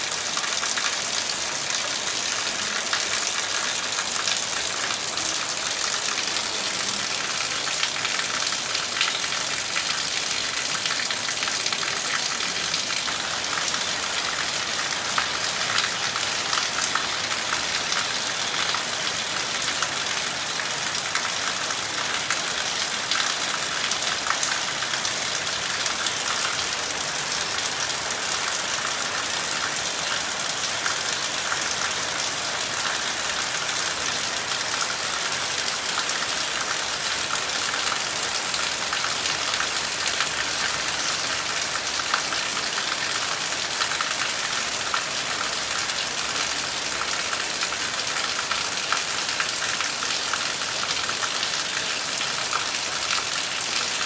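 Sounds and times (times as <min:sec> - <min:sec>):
heavy rain on leaves: 0:00.0 - 0:54.0.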